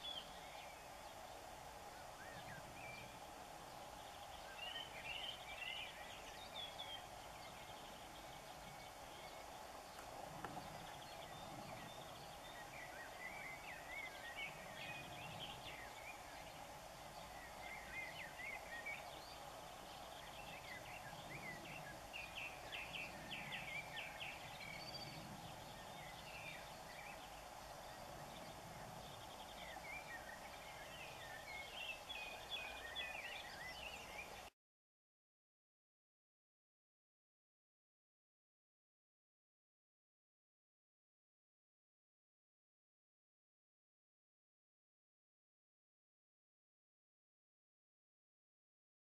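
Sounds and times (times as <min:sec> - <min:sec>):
steady background noise: 0:00.0 - 0:34.5.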